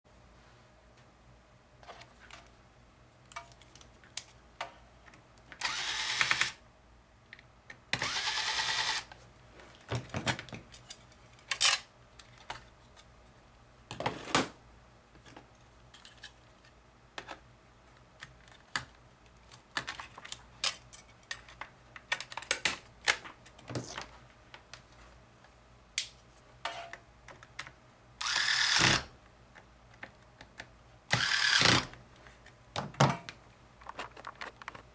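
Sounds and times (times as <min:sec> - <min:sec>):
electric screwdriver whirring: 0:05.6 - 0:06.6, 0:08.0 - 0:09.1, 0:28.2 - 0:29.0, 0:31.1 - 0:31.9
clicks and knocks of plastic: 0:32.8 - 0:34.9.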